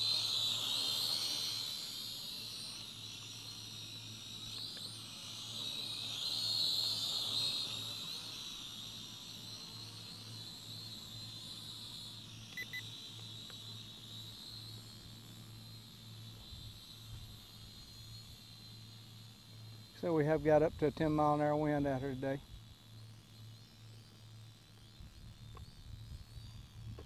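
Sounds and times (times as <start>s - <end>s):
toy drone propellers whining: 0.0s - 23.0s, 24.7s - 27.0s
short beeps: 12.5s - 12.8s.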